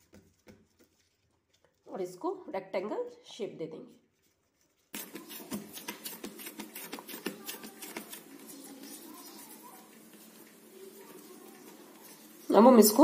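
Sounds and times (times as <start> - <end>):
fingers patting dough: 0.0 - 1.2, 4.9 - 12.6
rubbing and pressing dough: 0.0 - 2.0, 4.0 - 13.0.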